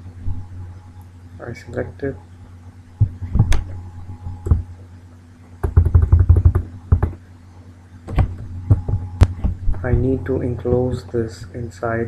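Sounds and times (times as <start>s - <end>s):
steady low hum: 0.0s - 12.0s
computer keyboard keystrokes: 5.6s - 7.2s.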